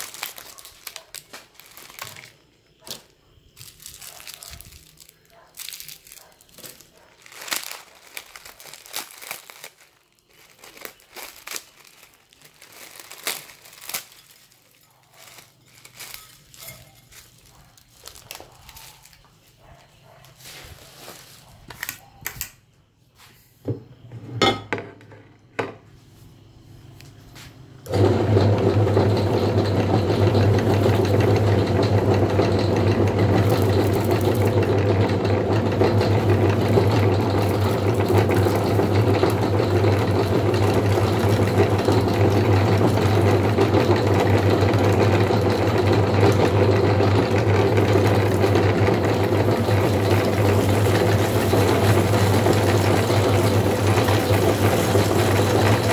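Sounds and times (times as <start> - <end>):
meat grinder motor hum: 27.4 - 55.9.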